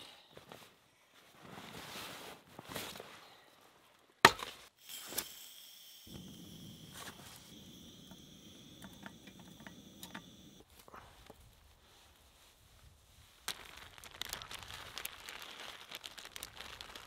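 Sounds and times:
camp stove hissing: 4.8s - 10.7s.

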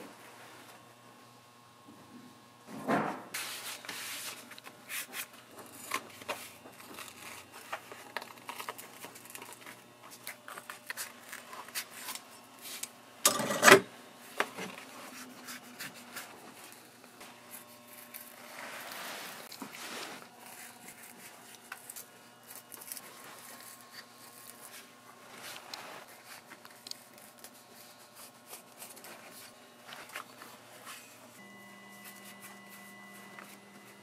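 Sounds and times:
handling rubs: 14.7s - 34.0s.

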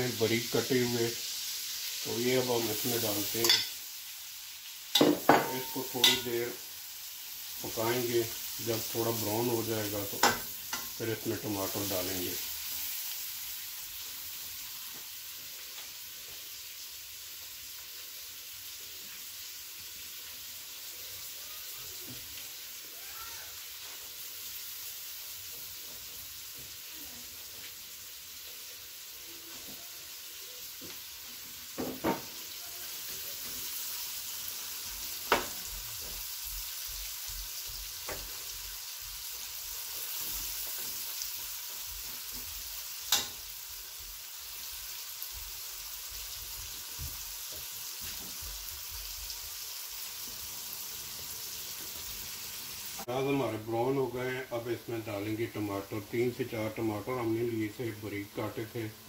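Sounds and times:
onions sizzling in hot fat: 0.0s - 59.0s
metal spoon clinking against pan: 3.4s - 3.8s, 4.9s - 6.4s.

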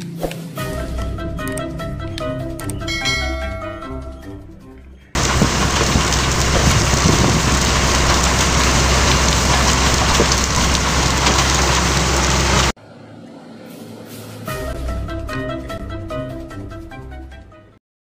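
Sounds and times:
engine drone: 5.2s - 12.8s.

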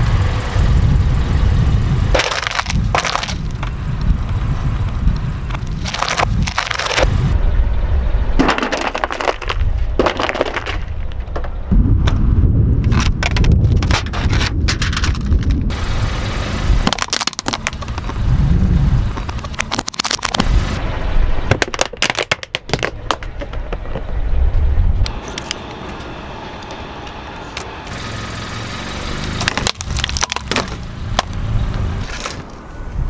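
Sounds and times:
rolling tyre rumble: 0.0s - 33.0s
plastic basket cracking: 2.2s - 3.7s, 5.5s - 7.0s, 16.9s - 18.1s, 19.2s - 20.4s, 29.4s - 31.4s.

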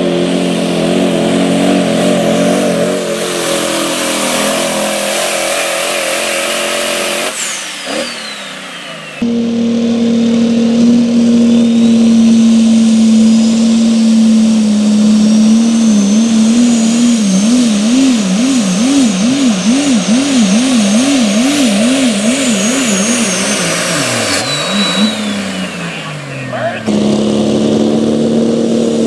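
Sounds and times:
diesel truck engine at full throttle: 0.0s - 29.0s
faint high whistle: 11.3s - 14.2s, 18.6s - 26.2s.

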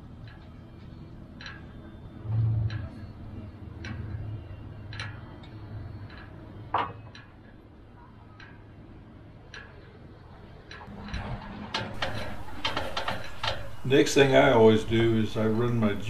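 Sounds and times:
rigging and deck hardware clicks: 9.4s - 16.0s.

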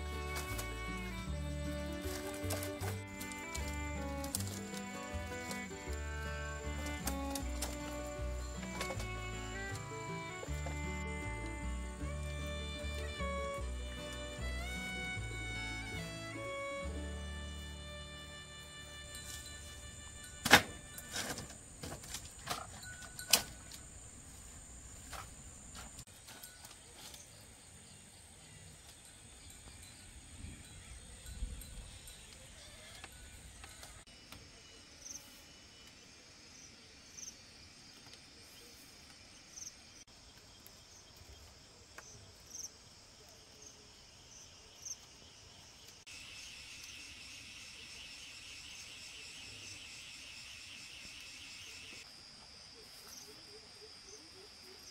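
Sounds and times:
insects chirping: 0.0s - 54.9s
pulsing insect trill: 17.5s - 21.8s, 46.1s - 54.9s
insect short call: 46.1s - 54.9s.

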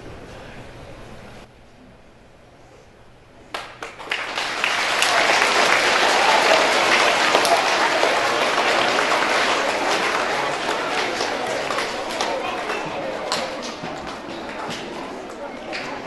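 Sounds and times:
audience applauding: 3.5s - 16.0s.

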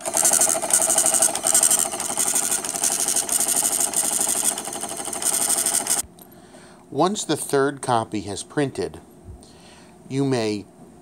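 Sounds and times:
tape printer buzzing: 0.0s - 6.0s.

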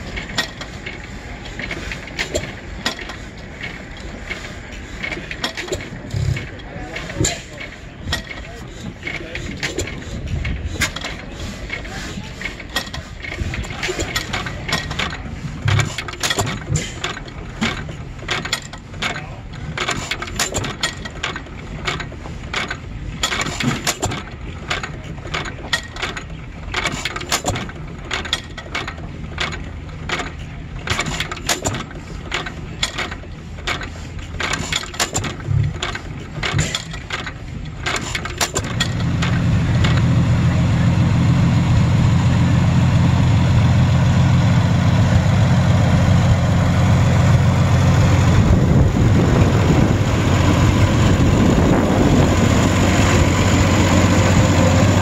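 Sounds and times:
valve gear clicking and clattering: 0.0s - 41.3s
stationary engines running slowly: 0.0s - 55.0s
low hum: 38.6s - 55.0s.

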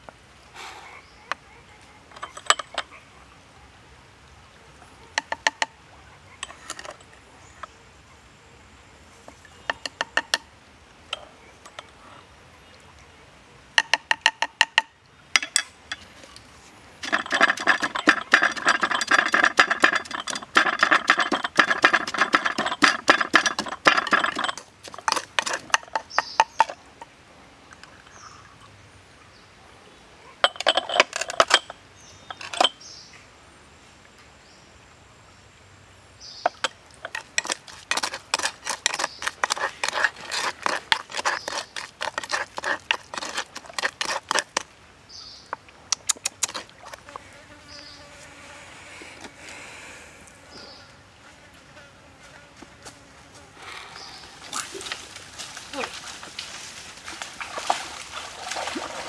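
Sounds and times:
plastic spoon tapping and clinking: 13.8s - 15.7s
wooden pestle pounding in mortar: 17.0s - 26.7s, 37.1s - 44.6s.

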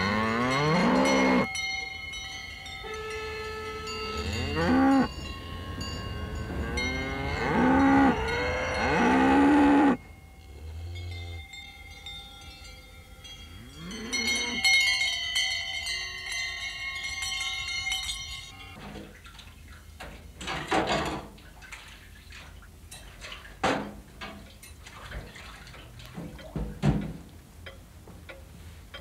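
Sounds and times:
cow lowing: 0.0s - 1.5s, 2.9s - 11.4s
cowbells clanging: 0.0s - 18.8s
water splashing in a sink: 20.6s - 26.5s.

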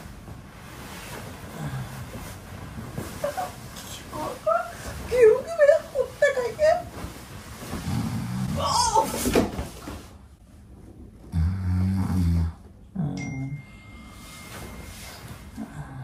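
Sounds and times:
man snoring loudly: 11.3s - 12.6s.

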